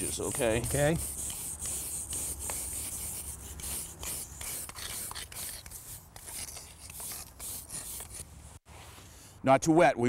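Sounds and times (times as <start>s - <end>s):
wire brushes scraping concrete: 0.0s - 8.3s.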